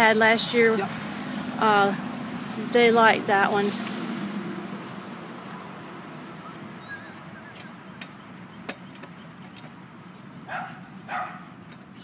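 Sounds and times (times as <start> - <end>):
dog barking: 10.5 - 11.5.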